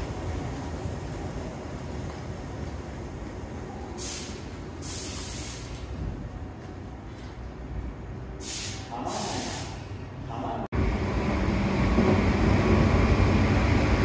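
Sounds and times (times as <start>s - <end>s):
electric train rumbling: 0.0s - 14.0s
compressed air hissing: 4.0s - 6.0s, 8.4s - 10.1s.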